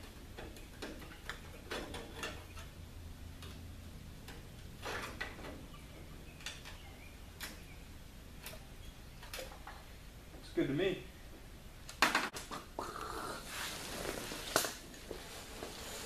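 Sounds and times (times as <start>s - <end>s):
sheet metal clicks and scrapes: 0.3s - 2.8s.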